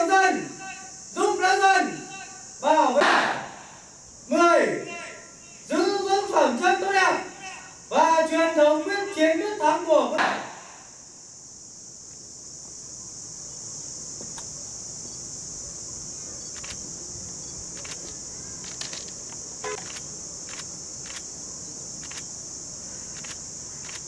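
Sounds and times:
insects droning: 0.0s - 24.0s
faint sharp clicks: 16.5s - 16.8s.

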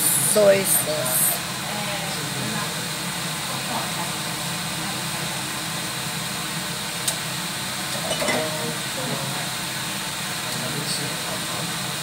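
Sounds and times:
food braising hiss in wok: 0.0s - 12.0s.

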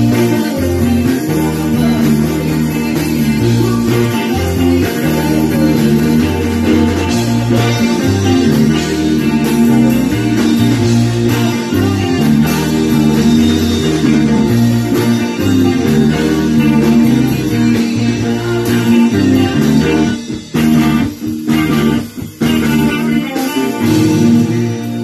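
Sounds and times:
bass guitar: 0.0s - 25.0s
electric guitars: 0.0s - 25.0s.

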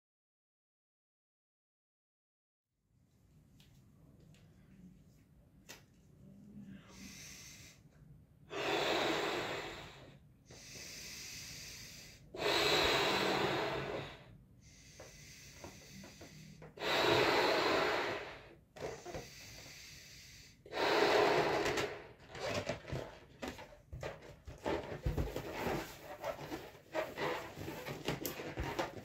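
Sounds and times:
person breathing in: 6.6s - 7.8s, 8.5s - 22.2s
breaths blown into balloon: 8.5s - 23.0s.

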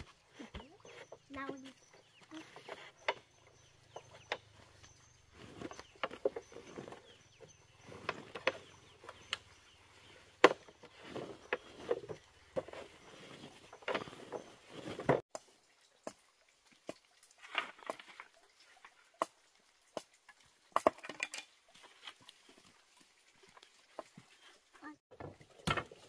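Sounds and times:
bamboo poles knocking: 0.3s - 7.1s, 7.9s - 9.5s, 10.1s - 16.2s.

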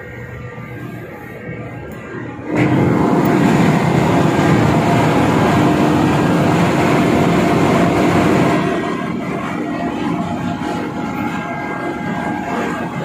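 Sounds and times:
conveyor machinery rumbling: 0.0s - 13.0s.

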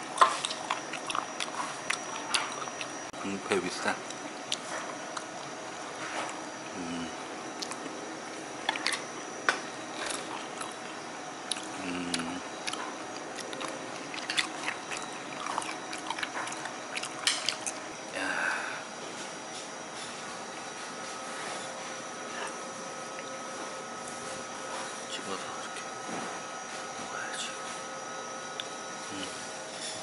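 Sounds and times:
person chewing: 0.1s - 3.0s, 10.0s - 10.9s, 11.5s - 17.8s.

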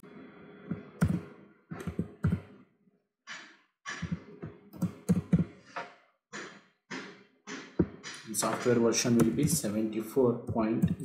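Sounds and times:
computer keyboard typing: 1.0s - 1.2s, 1.8s - 2.5s, 4.8s - 5.5s, 8.4s - 9.8s.

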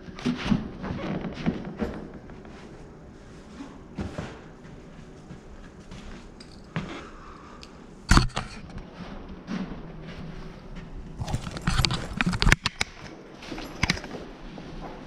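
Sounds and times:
footsteps on carpet: 2.5s - 6.9s.

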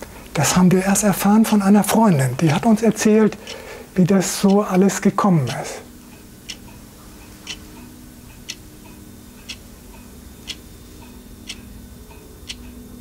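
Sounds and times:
faint steady hum: 0.0s - 13.0s
clock ticking: 4.3s - 4.8s, 5.5s - 6.8s, 8.3s - 12.8s.

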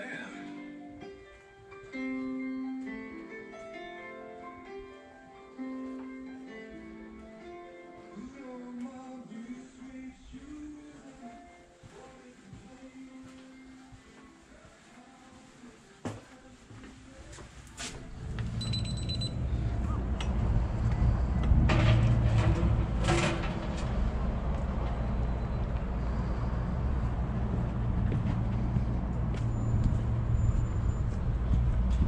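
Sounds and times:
traffic rumble: 18.0s - 32.0s
wind on microphone: 19.7s - 23.1s.

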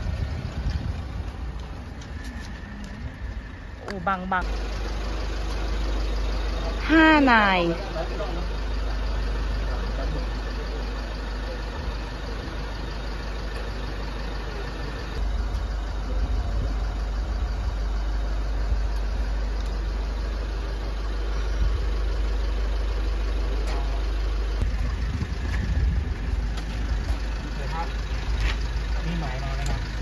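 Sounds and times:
truck engine idling: 0.0s - 30.0s.

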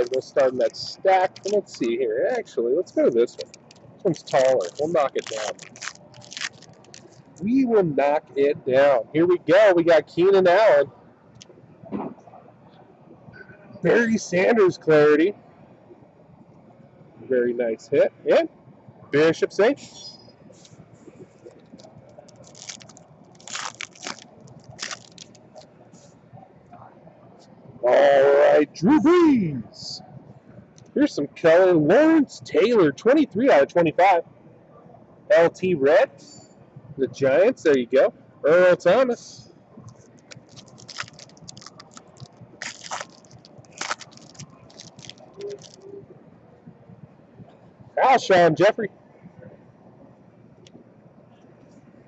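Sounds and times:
foil wrapper crinkling and tearing: 0.0s - 1.9s, 3.3s - 7.4s, 21.6s - 25.6s, 40.2s - 45.8s.

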